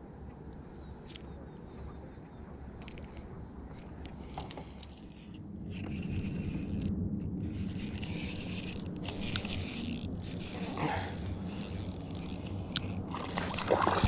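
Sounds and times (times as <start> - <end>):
fishing tackle clicks and rattles: 2.8 - 5.2, 7.5 - 13.5
low rumble: 4.1 - 14.0.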